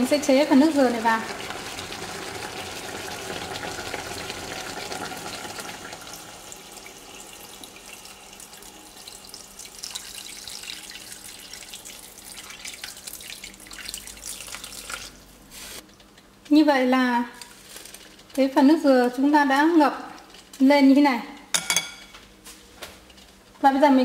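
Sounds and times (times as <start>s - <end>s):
liquid pouring and splashing: 1.3s - 15.3s.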